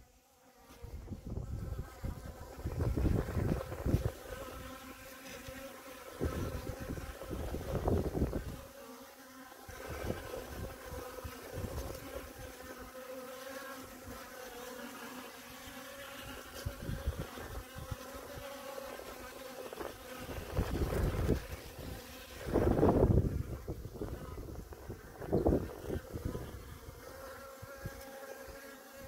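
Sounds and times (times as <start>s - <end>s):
bees buzzing: 0.0s - 29.0s
wind rumble on microphone: 0.9s - 4.6s, 6.2s - 8.7s, 9.8s - 12.4s, 16.2s - 18.5s, 19.7s - 27.0s.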